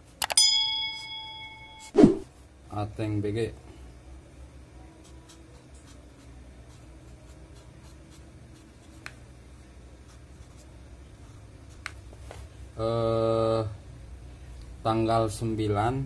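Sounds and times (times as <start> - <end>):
faint low hum: 0.0 - 16.0
marker scratching on fabric: 5.0 - 9.2.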